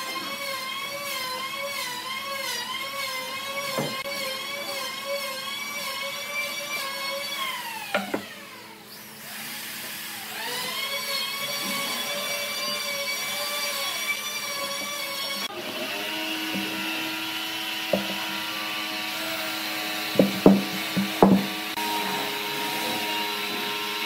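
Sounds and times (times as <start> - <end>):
electric motor whining: 0.0 - 24.0
light knocks: 17.9 - 18.3, 20.2 - 21.6.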